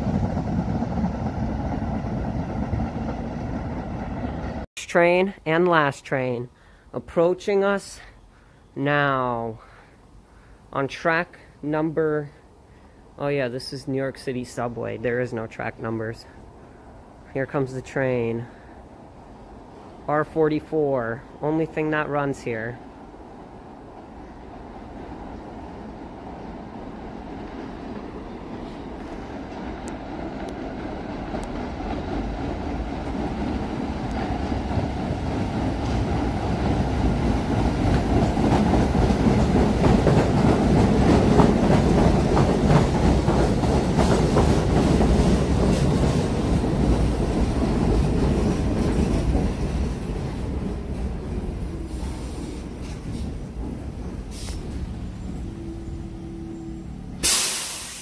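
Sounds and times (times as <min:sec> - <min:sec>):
subway train wheels rumbling on rails: 0:00.0 - 0:04.7, 0:18.3 - 0:58.0.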